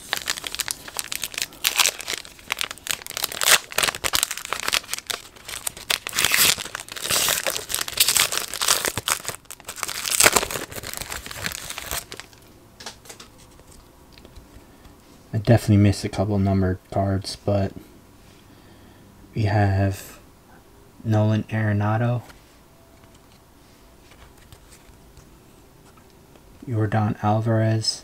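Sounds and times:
foil wrapper crinkling: 0:00.0 - 0:12.4.

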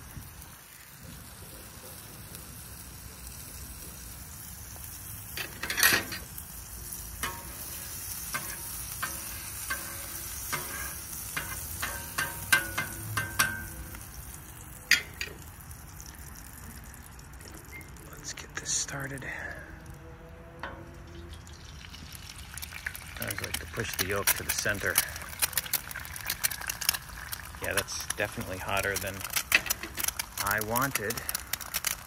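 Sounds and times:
butter sizzling on griddle: 0:00.0 - 0:18.9, 0:20.7 - 0:32.0
cooking utensils clicking and scraping: 0:05.2 - 0:15.6, 0:22.6 - 0:32.0.

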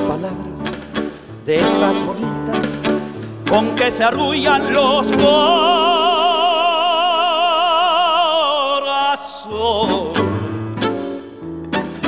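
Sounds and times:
man singing held note: 0:04.4 - 0:10.0.

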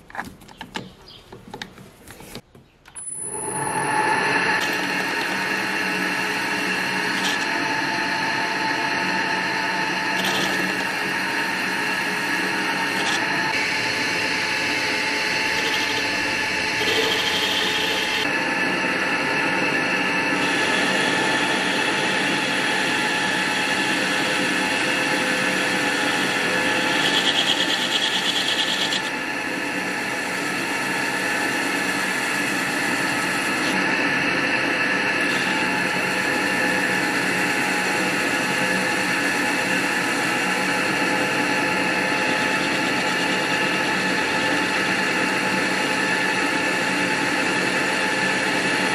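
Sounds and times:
lathe motor humming and whining: 0:03.2 - 0:48.9
metal cutting rasp: 0:25.1 - 0:29.1.

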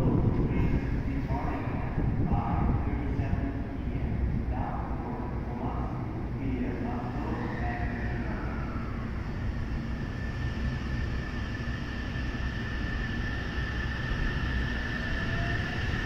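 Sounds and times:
train low rumble: 0:00.0 - 0:16.0.

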